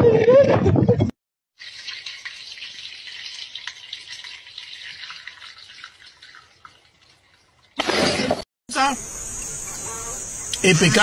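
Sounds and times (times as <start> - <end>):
liquid poured into hot oil: 1.6 - 7.8
oil sizzling and crackling: 1.6 - 7.8.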